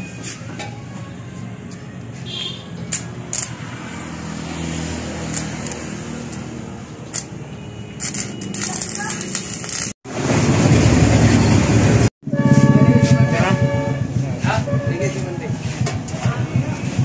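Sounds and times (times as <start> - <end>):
arc welding crackling: 2.9 - 3.7, 4.9 - 10.1.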